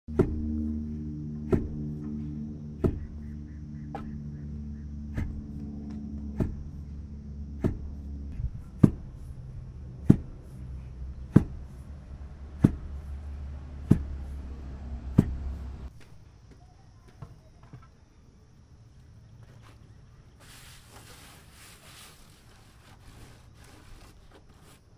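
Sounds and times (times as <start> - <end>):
steady low drone: 0.1 - 15.9
wooden pestle pounding in mortar: 2.8 - 3.3, 6.2 - 6.8, 7.6 - 8.1, 8.7 - 9.2, 10.0 - 10.4, 11.2 - 11.8, 12.5 - 13.1, 13.7 - 14.2.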